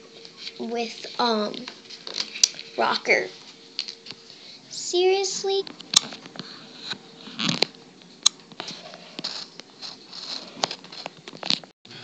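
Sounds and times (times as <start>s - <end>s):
toy handling rustling: 8.7s - 11.6s.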